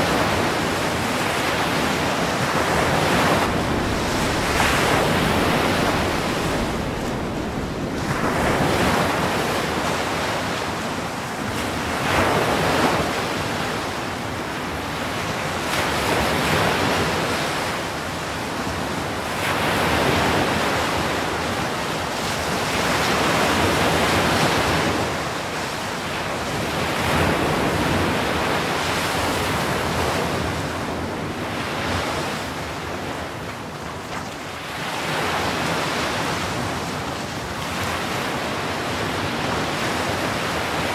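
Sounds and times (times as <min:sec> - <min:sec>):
waves breaking: 0:00.0 - 0:13.2.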